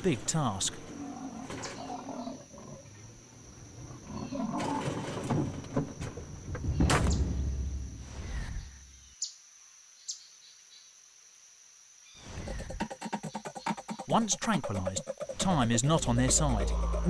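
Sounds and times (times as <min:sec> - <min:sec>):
leopard growling: 0:00.5 - 0:05.8, 0:12.4 - 0:17.0.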